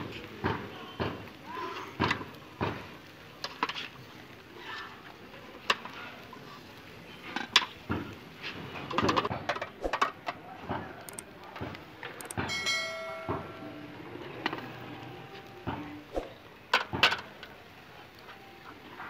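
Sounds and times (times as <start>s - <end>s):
metal skewers clinking on grill: 12.2s - 14.6s
short ringing tone: 12.5s - 13.9s.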